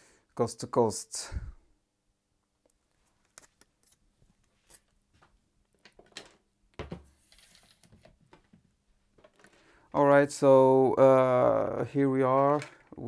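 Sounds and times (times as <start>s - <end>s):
earphone cable clicks and rustling: 9.2s - 9.6s.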